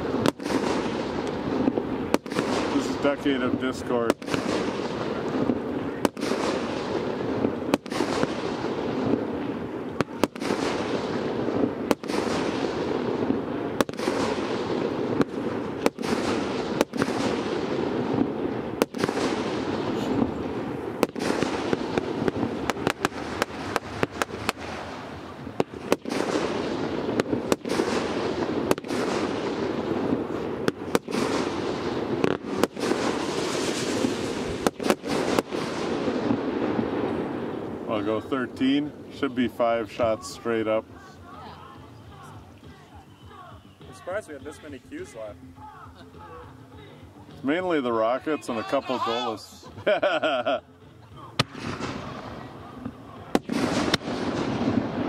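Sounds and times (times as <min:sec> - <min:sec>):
firework hiss: 0:00.0 - 0:37.9, 0:51.4 - 0:55.0
firework shots and bursts: 0:00.0 - 0:41.0, 0:51.4 - 0:55.0.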